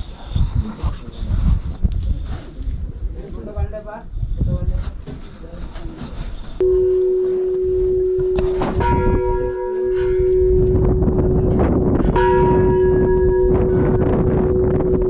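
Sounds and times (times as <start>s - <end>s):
large metal bell ringing: 6.6s - 15.0s.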